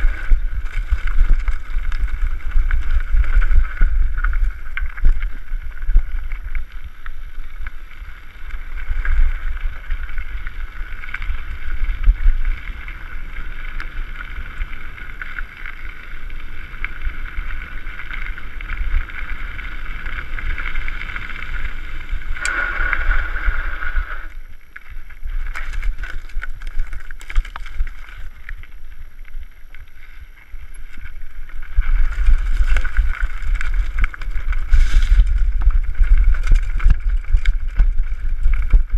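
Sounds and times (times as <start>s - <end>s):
wind rushing over microphone: 0.0s - 6.8s, 17.0s - 24.5s, 30.6s - 38.9s
bike rattling: 0.0s - 38.9s
tyres crunching on gravel: 9.7s - 38.9s.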